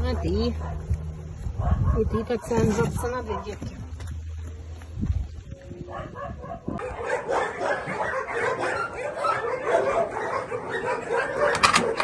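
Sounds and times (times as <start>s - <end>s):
many dogs barking: 0.0s - 3.8s, 5.8s - 12.0s.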